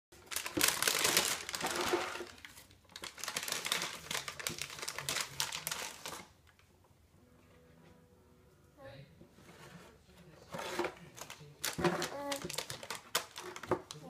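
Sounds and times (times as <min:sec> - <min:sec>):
snack packaging crinkling: 0:00.2 - 0:06.4, 0:10.6 - 0:14.0.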